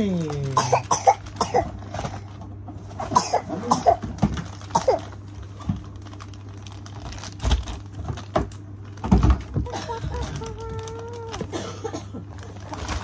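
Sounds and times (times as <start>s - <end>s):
steady low hum: 0.0s - 13.0s
small child vocalizing: 9.8s - 11.5s.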